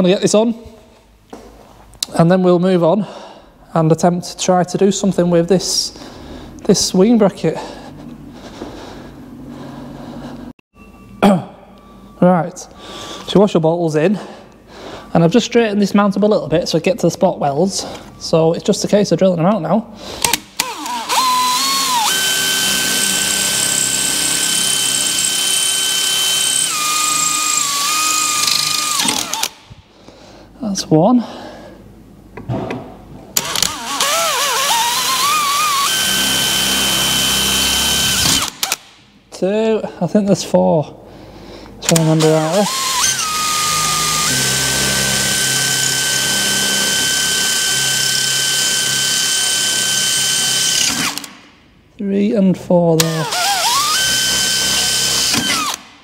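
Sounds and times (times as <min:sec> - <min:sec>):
cordless drill drilling metal: 0:20.2 - 0:29.6, 0:33.4 - 0:38.9, 0:41.8 - 0:51.4, 0:53.0 - 0:55.9.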